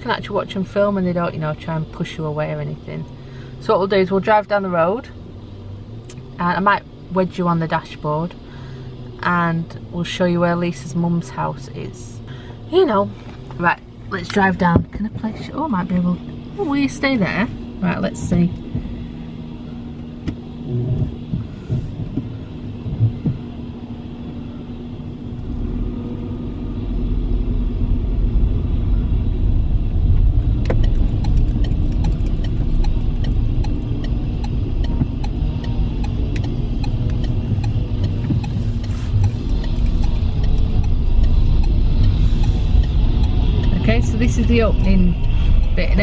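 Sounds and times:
car engine from inside cabin: 0.0 - 46.0
light clicks and rattles: 30.5 - 43.8.

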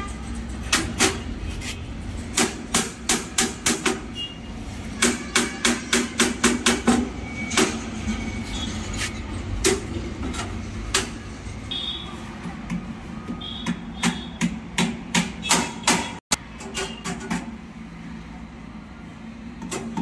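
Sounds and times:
hammer striking metal grill: 0.0 - 1.4, 2.2 - 4.2, 4.9 - 8.0, 9.6 - 11.2, 13.6 - 17.5.

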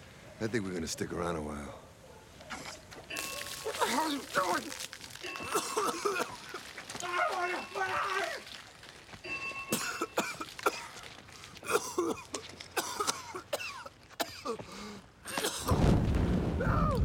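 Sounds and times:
man coughing and spluttering: 3.2 - 6.8, 9.7 - 11.0, 11.6 - 15.8.

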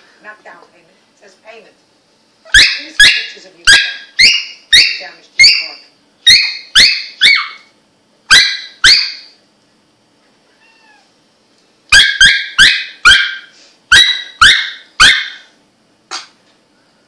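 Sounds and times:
dog squeaking: 2.5 - 7.7.

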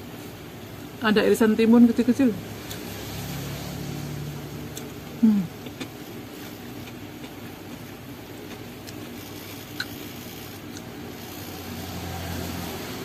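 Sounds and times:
person chewing: 4.7 - 10.9
person humming mm: 5.2 - 5.6.

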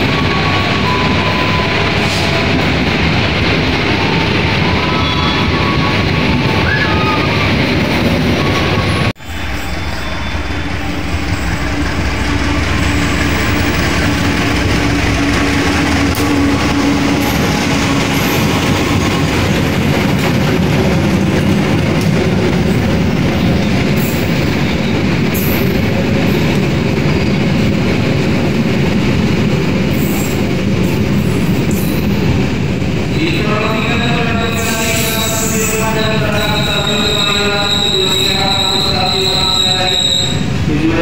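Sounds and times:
train wheels rumbling and clattering: 0.0 - 41.0
locomotive engine hum: 5.5 - 33.1
high wheel squeals: 8.4 - 13.9, 33.8 - 40.5.

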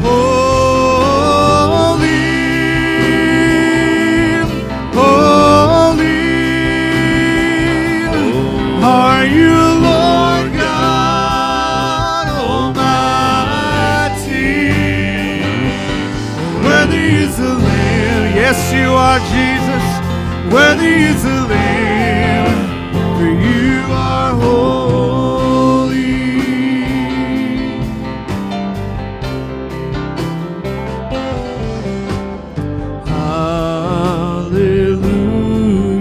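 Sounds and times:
voices singing: 0.0 - 28.0
acoustic guitar: 0.0 - 36.0
keyboard chords: 0.0 - 36.0.

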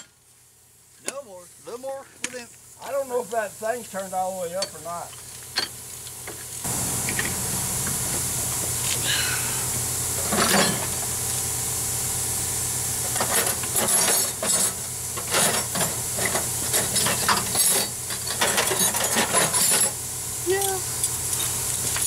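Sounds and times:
steady hiss: 0.0 - 18.3.

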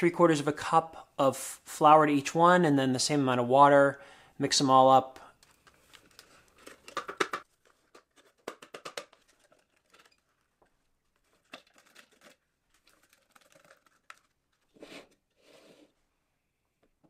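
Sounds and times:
foil packets crinkling: 5.4 - 14.7.

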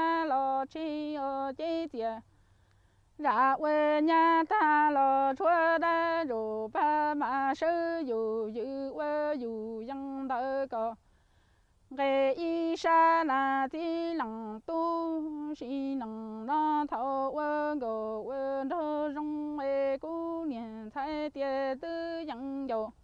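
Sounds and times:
woman singing unaccompanied: 0.0 - 2.4, 3.1 - 11.1, 11.8 - 23.0.

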